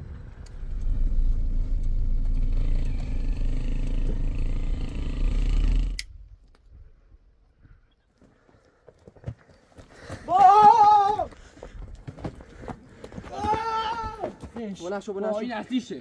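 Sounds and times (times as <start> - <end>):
car road and engine rumble: 0.0 - 6.4.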